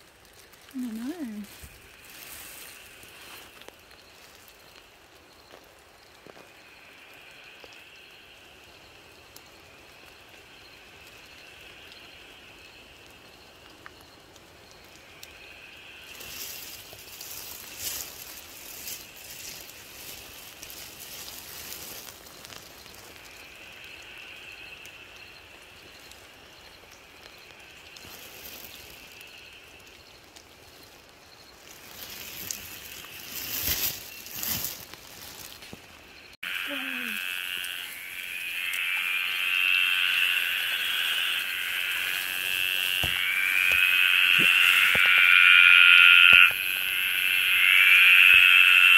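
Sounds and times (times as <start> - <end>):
rustling and patter: 0.0 - 4.8, 16.1 - 23.3, 27.9 - 29.2, 30.3 - 36.0
high-pitched night calling: 14.9 - 26.3, 31.6 - 48.9.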